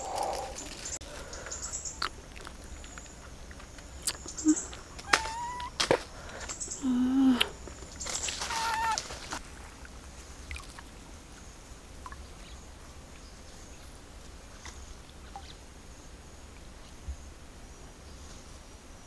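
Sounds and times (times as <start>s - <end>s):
pond water moving gently: 7.6s - 16.8s.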